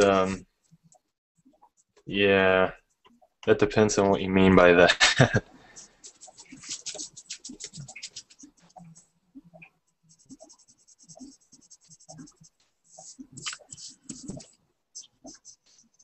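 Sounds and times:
pencil scratching on paper: 5.7 - 9.0, 9.9 - 16.0.

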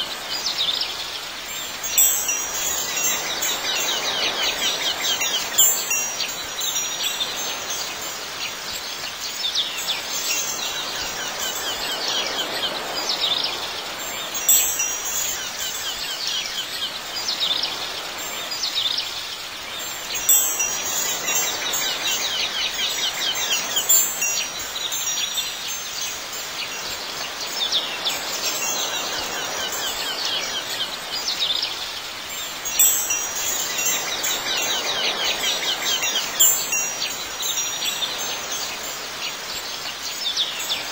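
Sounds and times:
wind chimes tinkling: 0.1 - 40.9.

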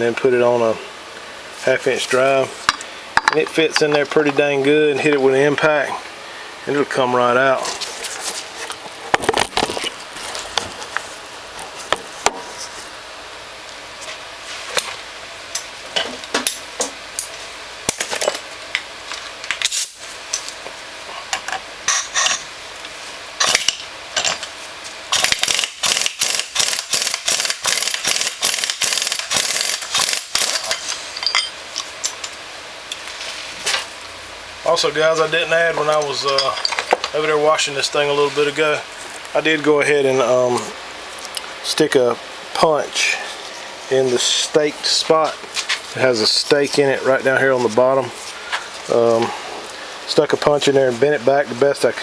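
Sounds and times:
metal tools clinking on steel: 30.4 - 31.9, 35.9 - 37.0.

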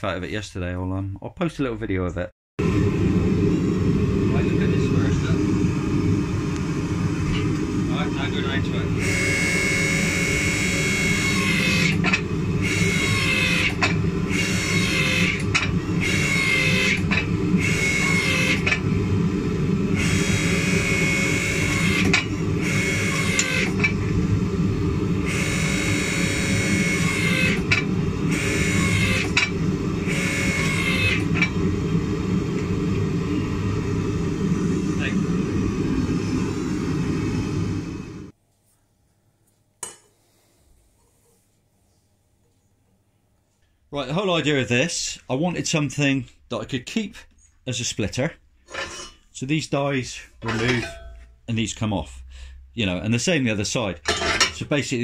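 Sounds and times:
hydraulic press whine: 2.6 - 38.3, 50.3 - 51.4
hydraulic pump motor humming: 2.6 - 38.3.

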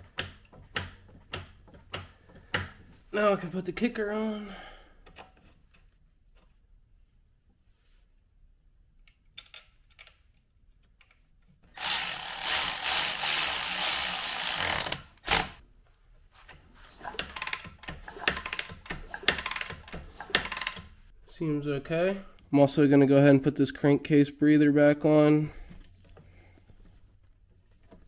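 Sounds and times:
handheld power tool running: 11.8 - 15.6.

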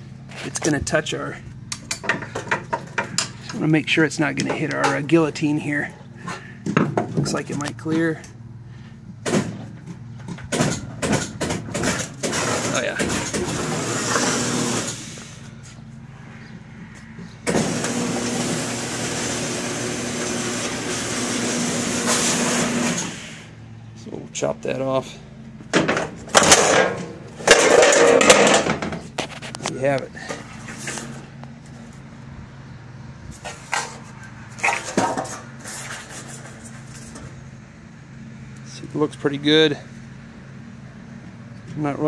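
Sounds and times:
roll-former machine running: 17.4 - 23.1
sheet-metal gutter crinkling: 25.7 - 31.3, 33.4 - 37.4.

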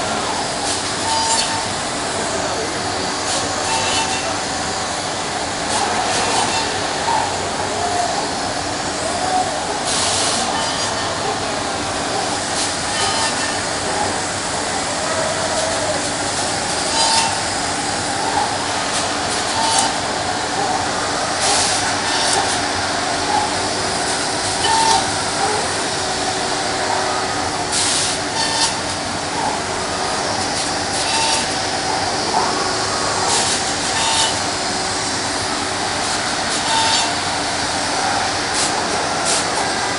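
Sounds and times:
short hissing bursts: 9.7 - 11.7, 21.3 - 28.4
machine spindle cutting wood: 15.5 - 39.9.

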